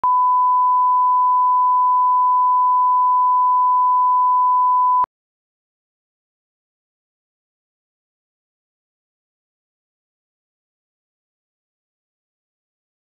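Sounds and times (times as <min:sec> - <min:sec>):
steady test tone beep: 0:00.0 - 0:05.1.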